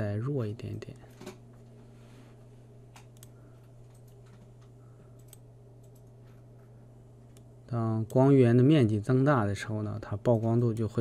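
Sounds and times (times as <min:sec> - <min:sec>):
steady low hum: 0:00.0 - 0:11.0
computer mouse clicks: 0:02.9 - 0:06.4.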